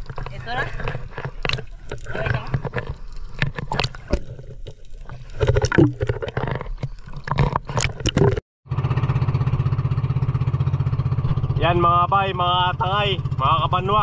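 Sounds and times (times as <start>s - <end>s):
small boat engine running: 8.1s - 14.0s.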